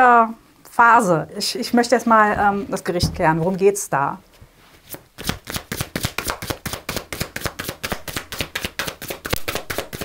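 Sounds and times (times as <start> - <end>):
cards being shuffled: 4.8 - 10.0.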